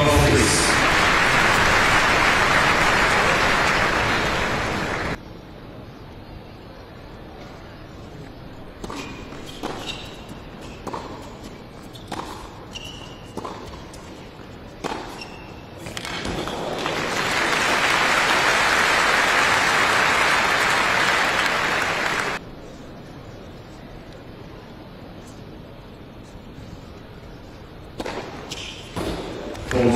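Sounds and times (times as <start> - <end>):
crowd applauding loudly: 0.0 - 5.2, 16.5 - 22.4
shoe squeaks: 8.9 - 14.2, 14.9 - 15.8, 28.5 - 29.0.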